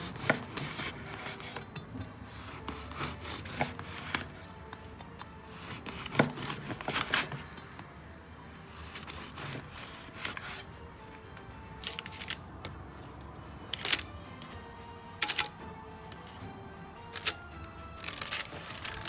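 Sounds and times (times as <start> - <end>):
bread knife sawing crusty loaf: 0.0 - 1.6, 2.3 - 4.3, 8.7 - 10.7
soft background music: 0.0 - 19.0.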